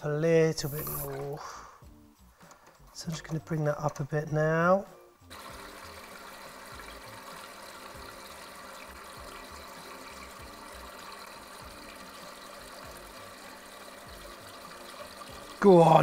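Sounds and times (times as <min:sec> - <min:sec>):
water hissing into toilet cistern: 0:00.6 - 0:01.6, 0:05.3 - 0:16.0.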